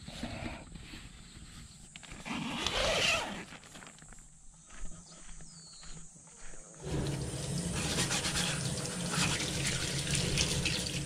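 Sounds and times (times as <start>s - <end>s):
pot being rinsed by hand: 6.8s - 11.0s
tap water running into sink: 6.8s - 11.0s.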